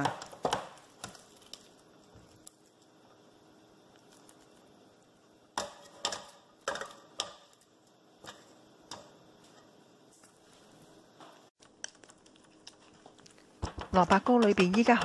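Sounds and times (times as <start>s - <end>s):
spatula knocking on metal pot: 13.6s - 15.0s.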